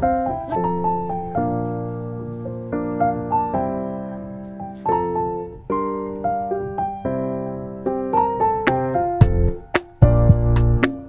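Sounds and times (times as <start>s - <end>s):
keyboard music chords: 0.0s - 11.0s.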